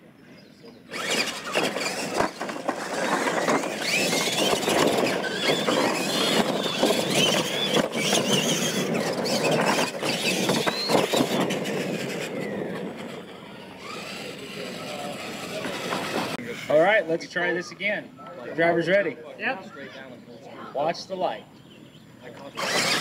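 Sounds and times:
electric motors whining: 0.8s - 16.8s, 21.9s - 23.0s
noisy rush: 0.9s - 18.2s.

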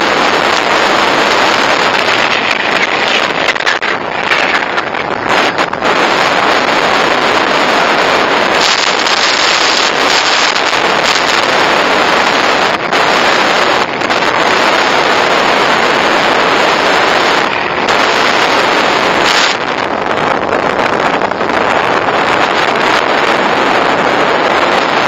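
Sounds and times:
wind rushing over microphone: 0.0s - 25.0s.

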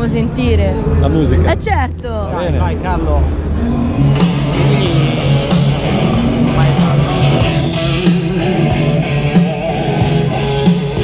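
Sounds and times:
rock music through motorcycle stereo: 3.4s - 11.0s.

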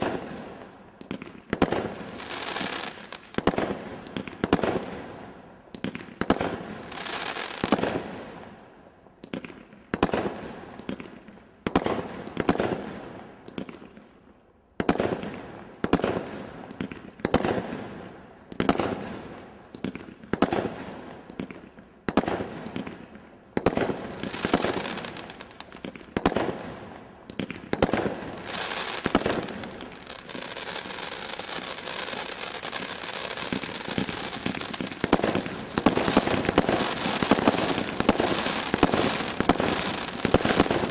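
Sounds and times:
firework crackling: 0.0s - 4.9s, 23.6s - 40.9s
firework shots: 0.0s - 5.0s, 23.6s - 40.9s.

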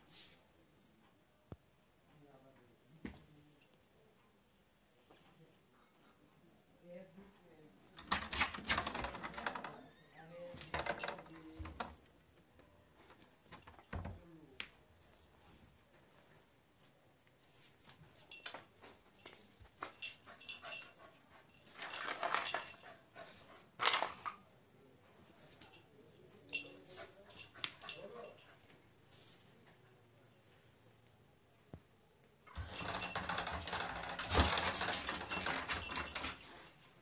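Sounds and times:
puppy scratching at wooden door: 8.0s - 9.8s, 32.5s - 36.5s.

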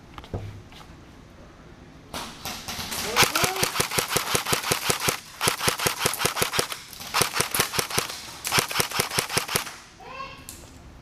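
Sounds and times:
airsoft gun firing bursts: 2.6s - 9.8s.

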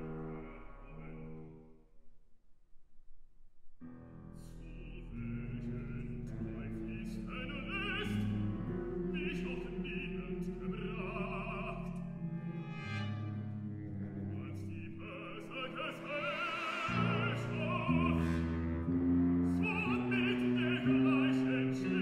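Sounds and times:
symphony orchestra: 4.2s - 22.0s
baritone singing with vibrato: 4.5s - 13.1s, 14.2s - 22.0s.

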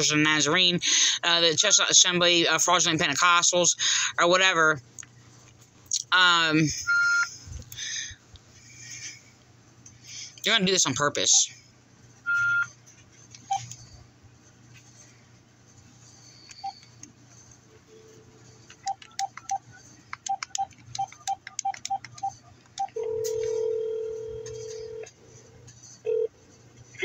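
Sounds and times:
keypad dialling beeps: 12.3s - 12.7s, 16.5s - 16.9s, 18.7s - 25.0s
phone ringback tone: 20.3s - 25.1s, 26.0s - 26.4s.

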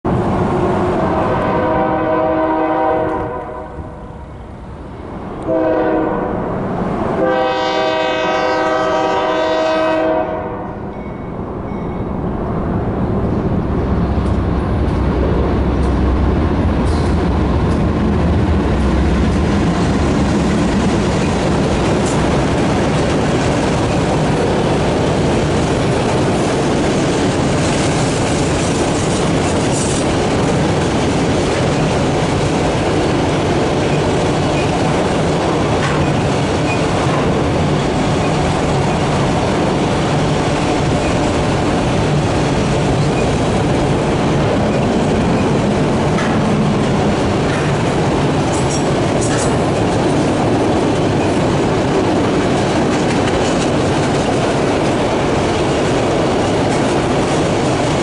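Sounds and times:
locomotive rumble: 0.0s - 58.0s
train horn blasts: 1.0s - 4.1s, 5.4s - 6.5s, 7.2s - 10.9s
train cars rolling and clicking: 10.8s - 58.0s.

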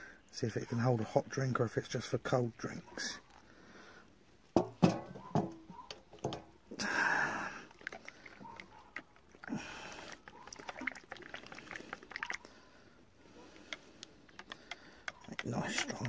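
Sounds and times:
sharp knocks of camping gear: 4.6s - 6.5s
light clicks and taps: 13.6s - 16.0s.

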